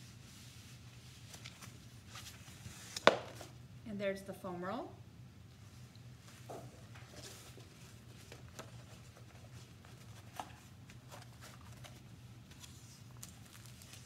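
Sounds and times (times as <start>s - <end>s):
canvas and paper rustling: 0.0s - 3.5s, 6.3s - 14.0s.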